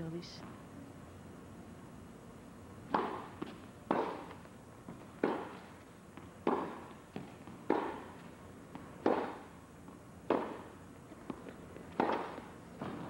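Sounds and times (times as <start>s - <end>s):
tennis balls struck by racquets: 2.8s - 13.0s.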